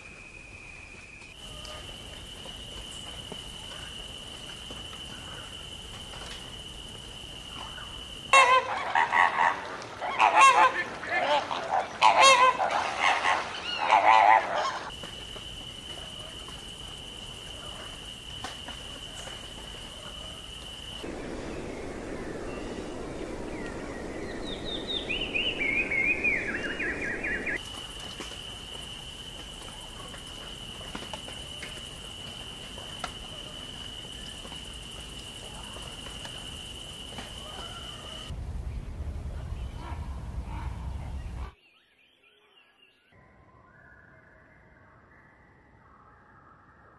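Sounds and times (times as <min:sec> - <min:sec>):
loud bird calls: 0:07.8 - 0:14.9
soft rushing noise: 0:21.0 - 0:27.6.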